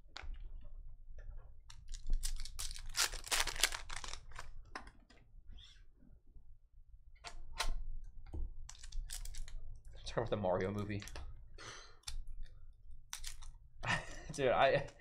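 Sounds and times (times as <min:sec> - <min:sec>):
foil wrapper tearing and crinkling: 0:01.9 - 0:04.5.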